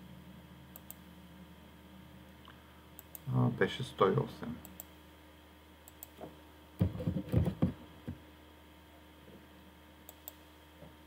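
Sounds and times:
faint electrical hum: 0:00.0 - 0:11.0.

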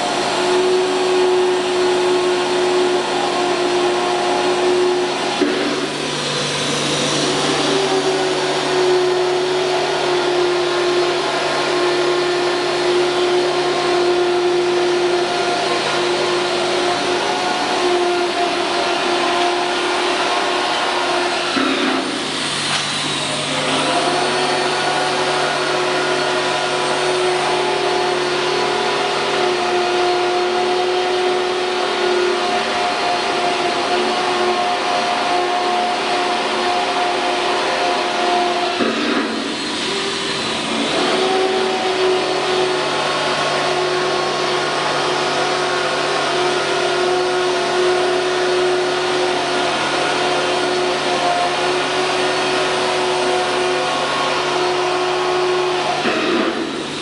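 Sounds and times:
router machine electric whine: 0:00.0 - 0:57.0.

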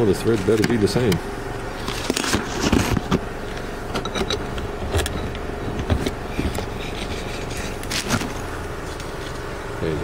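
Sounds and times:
steady low hum: 0:00.0 - 0:10.0
light metallic clicks and knocks: 0:03.0 - 0:06.7.

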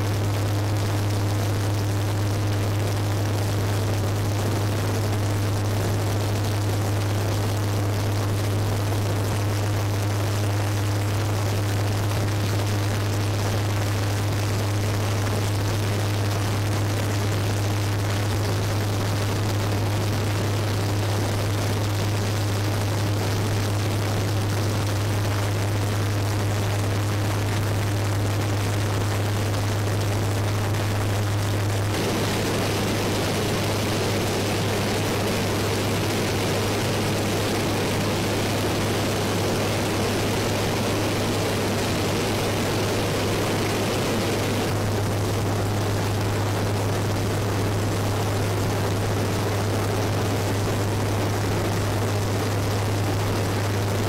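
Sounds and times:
aircraft engines and rotors droning: 0:31.8 - 0:45.6.

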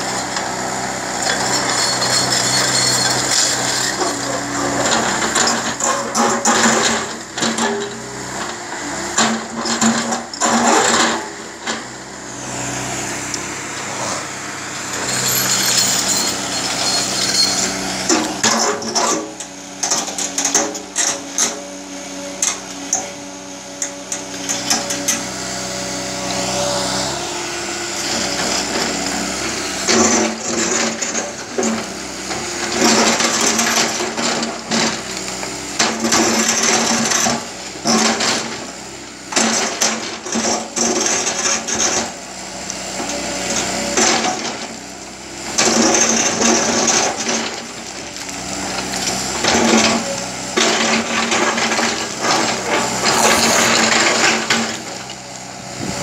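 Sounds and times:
excavator diesel engine running: 0:00.0 - 0:56.0
bucket scraping and grinding rock: 0:13.7 - 0:19.4, 0:48.5 - 0:55.2.

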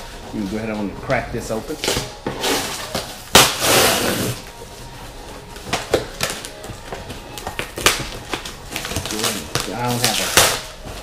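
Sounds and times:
packing tape tearing: 0:01.8 - 0:04.4, 0:07.4 - 0:11.0.

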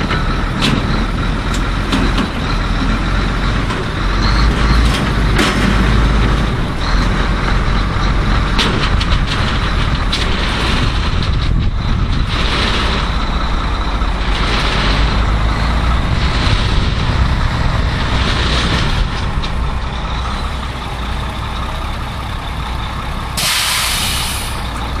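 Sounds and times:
diesel truck engine idling: 0:00.0 - 0:25.0
air brake hissing: 0:23.4 - 0:24.8.

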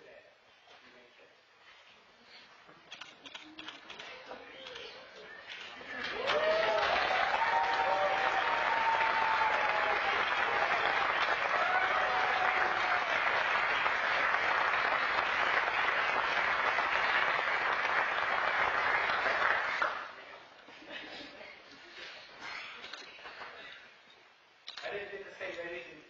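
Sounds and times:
congregation applauding: 0:05.8 - 0:20.3.

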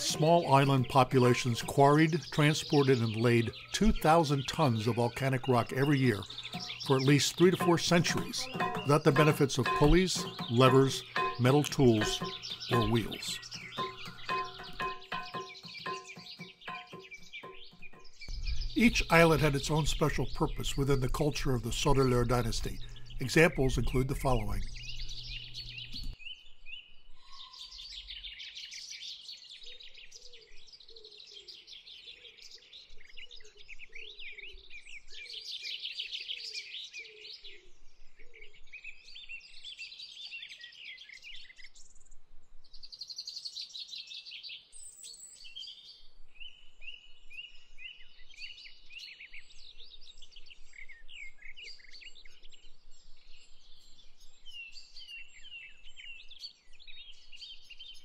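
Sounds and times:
low short repeated bird calls: 0:00.0 - 0:26.2
birds chirping and trilling: 0:00.0 - 0:42.1, 0:42.7 - 0:58.0.

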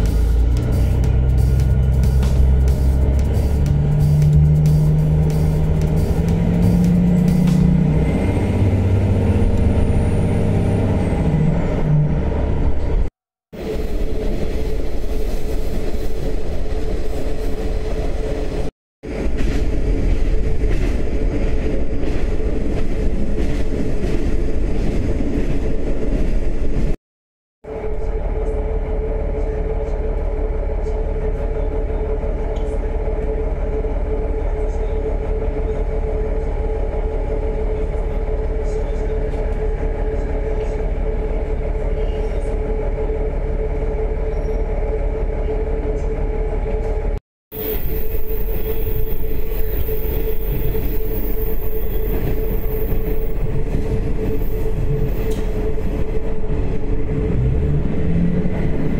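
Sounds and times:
engine idling hum: 0:00.0 - 0:10.8, 0:27.7 - 0:47.2
railcar running rumble: 0:00.0 - 0:27.0, 0:27.6 - 0:58.9.

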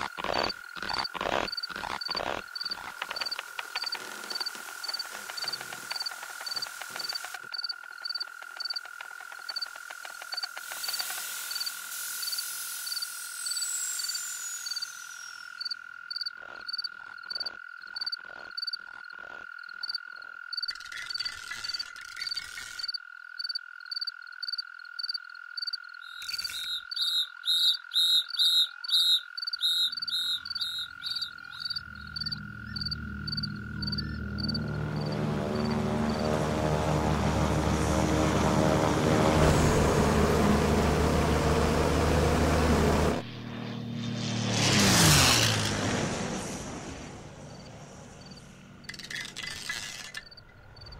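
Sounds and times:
croaking calls: 0:00.0 - 0:11.7, 0:13.6 - 0:36.3
high insect trill: 0:00.0 - 0:45.6, 0:46.9 - 0:50.9
low droning hum: 0:31.4 - 0:44.7.

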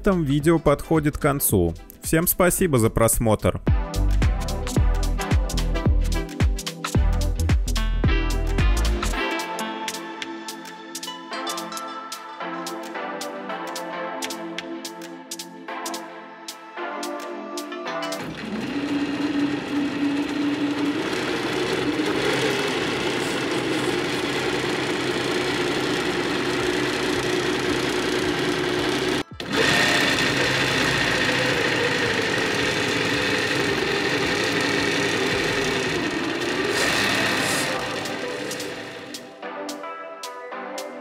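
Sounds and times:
electric motor and gear whine: 0:18.2 - 0:39.3.

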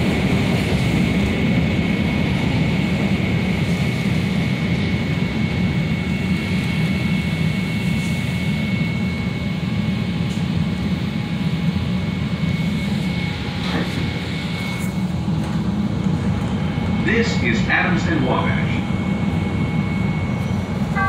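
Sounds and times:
high drive whine: 0:00.0 - 0:21.0
train car interior rumble: 0:00.0 - 0:21.0.

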